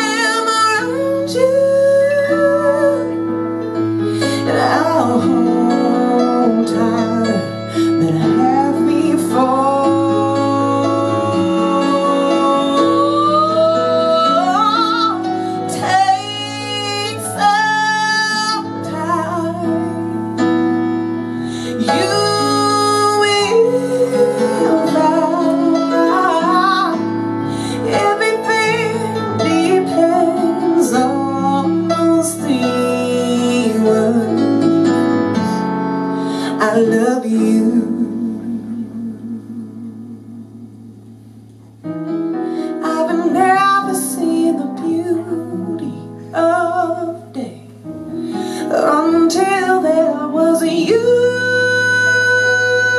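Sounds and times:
woman singing a jazz ballad: 0.0 - 41.5, 42.1 - 52.9
instrumental accompaniment: 0.0 - 52.9.

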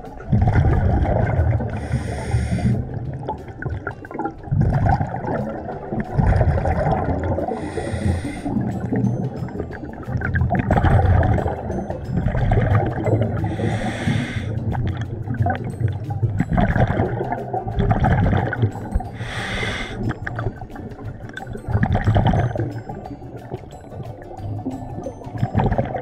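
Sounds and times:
exhaled bubbles rumbling: 0.0 - 26.0
hissing regulator inhalation: 1.6 - 3.0, 7.4 - 9.0, 13.3 - 14.8, 19.1 - 20.2.

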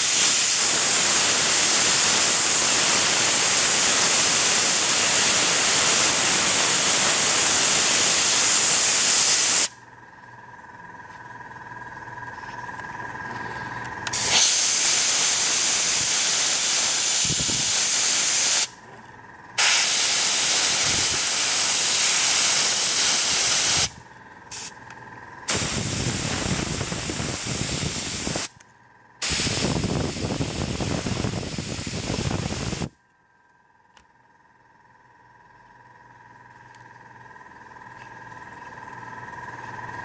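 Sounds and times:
airbrush spraying hiss: 0.0 - 9.8, 14.1 - 18.8, 19.6 - 24.8, 25.5 - 28.5, 29.2 - 32.9
faint steady whine: 0.0 - 40.0.

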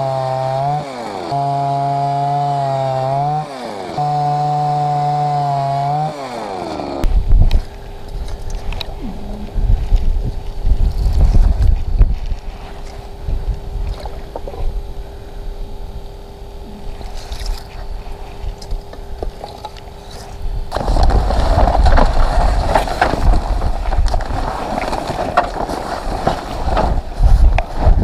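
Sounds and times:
faint steady hum: 7.0 - 28.0
wind rumble on microphone: 7.1 - 19.4, 26.2 - 28.0
fabric rustling and scraping: 21.2 - 28.0.

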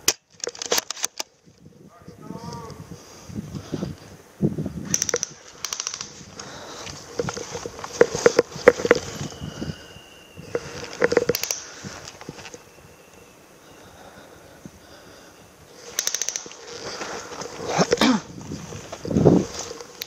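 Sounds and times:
footsteps crunching through twigs: 6.2 - 9.7, 16.6 - 20.0.

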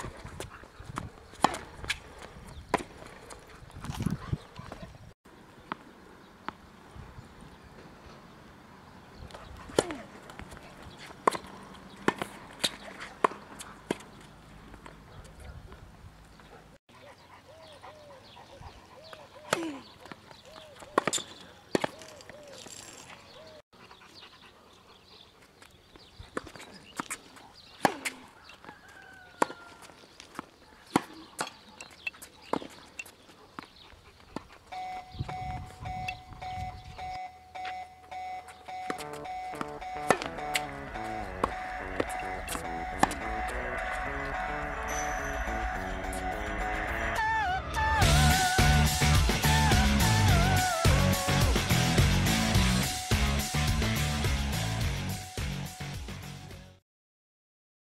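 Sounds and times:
tennis ball struck by rackets: 1.4 - 2.0, 9.7 - 14.2, 21.0 - 22.1, 27.8 - 28.2, 30.8 - 31.6, 38.9 - 44.1
tennis racket strikes: 27.8 - 28.2, 38.9 - 40.8, 41.4 - 43.6
steady beeping tone: 34.7 - 51.2
ball bouncing on hard court: 38.8 - 43.6.

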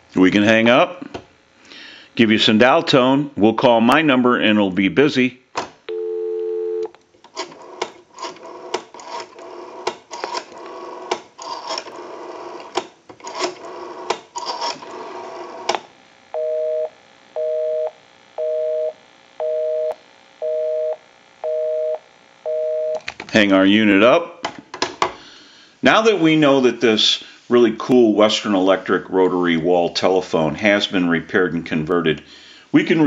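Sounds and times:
busy signal beeping: 5.9 - 6.9, 16.4 - 23.0.

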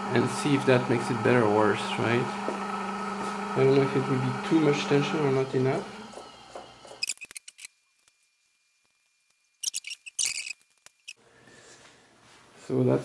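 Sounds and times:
screwdriver metallic scraping: 7.0 - 7.8, 9.6 - 11.2.

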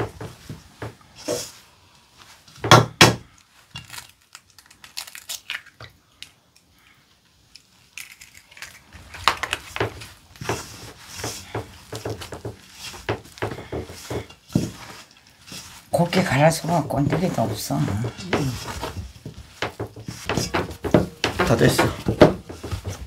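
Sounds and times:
hand squeezing dough in bowl: 7.3 - 23.0.

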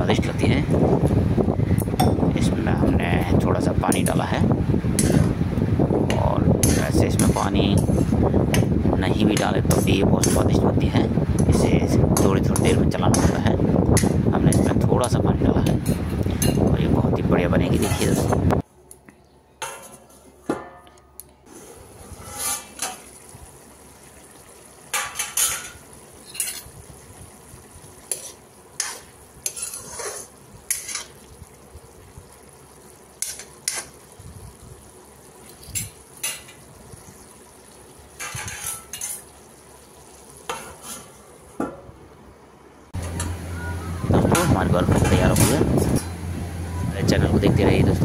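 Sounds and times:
ladle scraping metal pan: 21.5 - 23.1, 28.0 - 31.2, 38.2 - 39.2, 40.5 - 41.2
beans sizzling: 21.5 - 41.6
steel plate lid clanking: 22.1 - 23.0, 24.9 - 26.7, 38.2 - 39.2, 40.5 - 41.8, 44.4 - 46.2.

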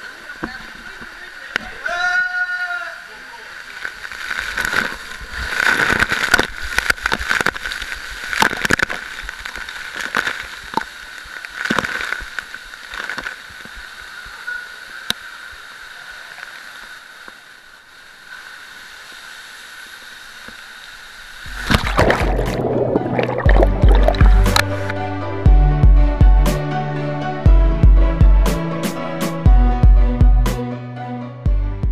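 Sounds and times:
water rushing in slide tube: 3.0 - 17.4, 18.1 - 24.9
splash into pool: 21.5 - 24.9.

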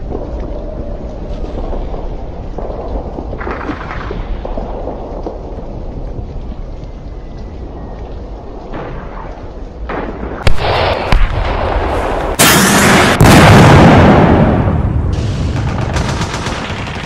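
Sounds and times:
low rumble: 0.0 - 17.0
explosions: 1.3 - 5.6, 8.7 - 17.0
gunfire cracks: 10.0 - 17.0.

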